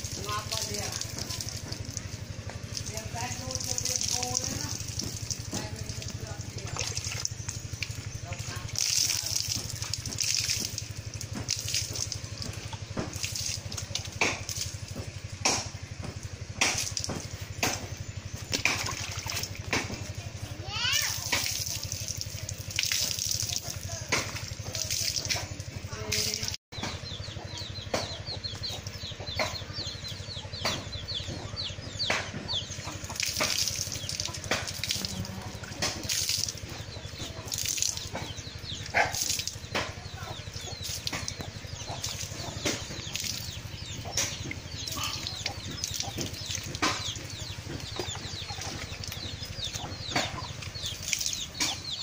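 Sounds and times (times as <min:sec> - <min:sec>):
water splashing: 0:00.0 - 0:26.6, 0:28.4 - 0:52.0
chickens clucking: 0:26.8 - 0:52.0.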